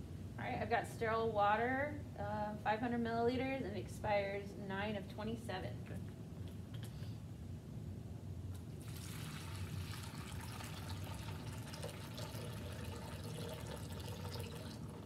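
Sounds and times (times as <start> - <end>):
water pouring into plastic basin: 8.8 - 15.0.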